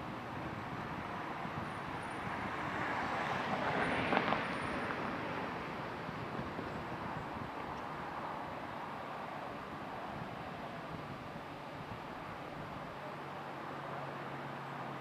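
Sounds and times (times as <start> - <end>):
distant traffic hum: 0.0 - 15.0
car passing by: 0.9 - 11.1.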